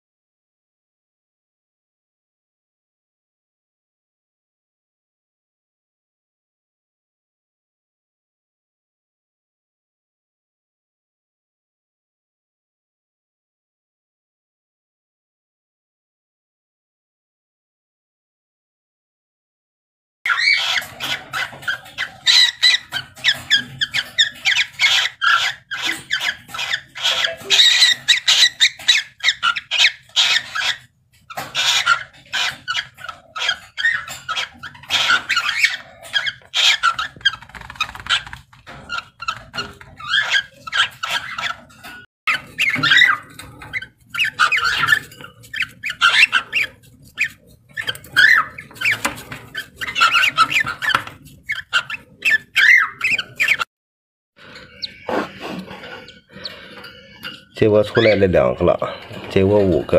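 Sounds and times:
cockatiels squeaky chirps: 20.3s - 53.7s, 54.4s - 58.4s.

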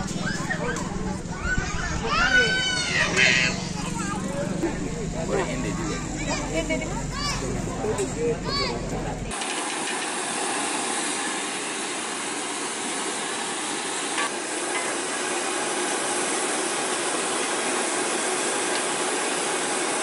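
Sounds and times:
oil sizzling in a wok: 9.3s - 20.0s.

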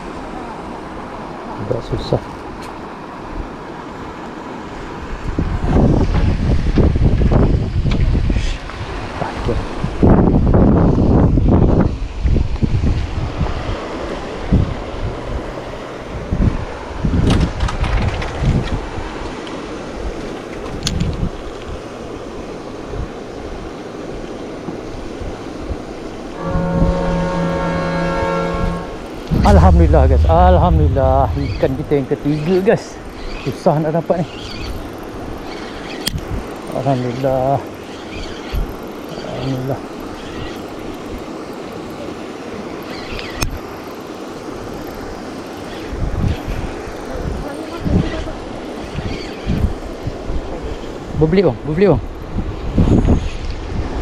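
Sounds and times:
steady outdoor rushing noise: 0.0s - 54.0s
wind buffeting microphone: 5.0s - 22.0s, 25.0s - 33.6s, 45.8s - 51.3s, 51.9s - 54.0s.

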